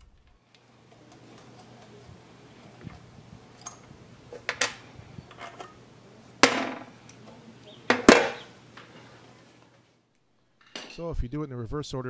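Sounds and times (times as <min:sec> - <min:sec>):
metal parts clanking down: 0:10.6 - 0:11.0.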